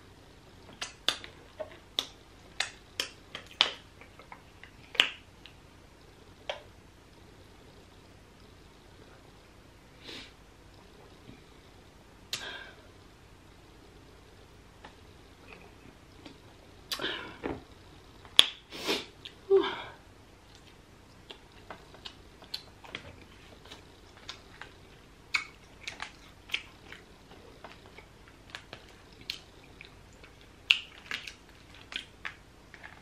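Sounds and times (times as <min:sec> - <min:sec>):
lip smacks and chewing: 0:20.5 - 0:33.0.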